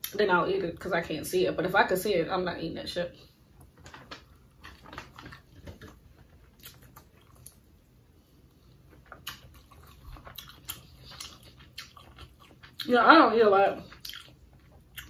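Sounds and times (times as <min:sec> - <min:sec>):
chewing: 0:03.6 - 0:12.9, 0:13.8 - 0:15.0.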